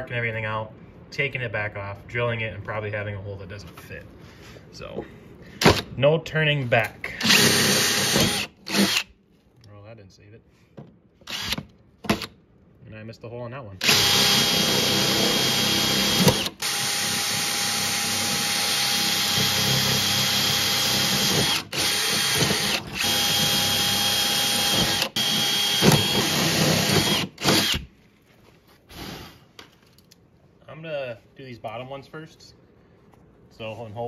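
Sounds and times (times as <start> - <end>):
cordless drill whining: 7.2 - 9.1, 11.2 - 11.7, 13.8 - 27.9.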